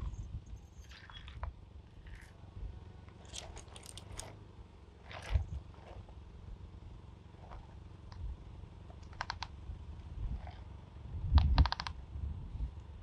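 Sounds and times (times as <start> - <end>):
low rumble: 0.0 - 6.6.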